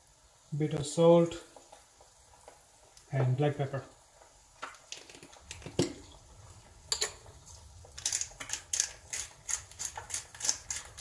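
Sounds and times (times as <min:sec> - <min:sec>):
pepper mill grinding clicks: 0:08.0 - 0:11.0.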